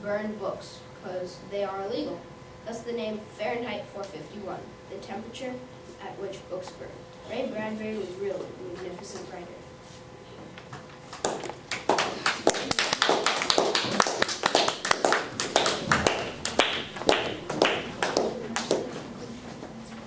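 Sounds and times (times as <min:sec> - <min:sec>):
small group clapping: 0:11.1 - 0:19.1.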